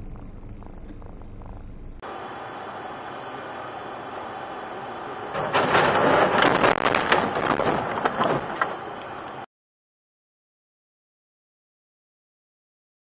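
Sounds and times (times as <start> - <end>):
road noise inside car: 0.0 - 9.5
wet debris hitting windshield: 5.4 - 8.7.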